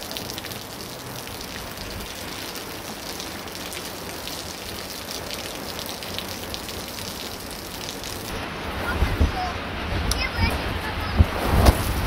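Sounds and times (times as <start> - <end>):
water splashing on hard surface: 0.0 - 8.4.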